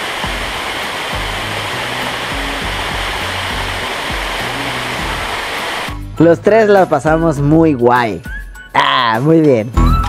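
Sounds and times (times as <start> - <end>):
waterfall splashing into pool: 0.0 - 5.9
background music bass notes: 0.2 - 8.9, 9.8 - 10.0.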